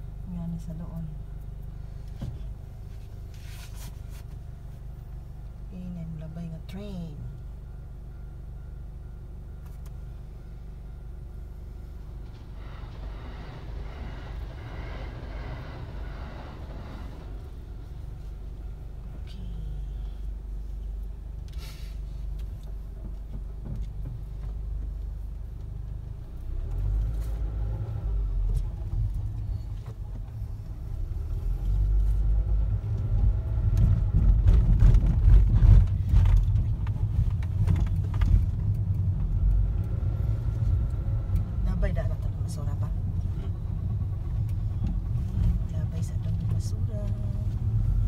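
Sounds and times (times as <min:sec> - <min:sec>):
car engine and road rumble: 0:00.0 - 0:48.0
wheels bumping over railway crossing: 0:11.5 - 0:18.6.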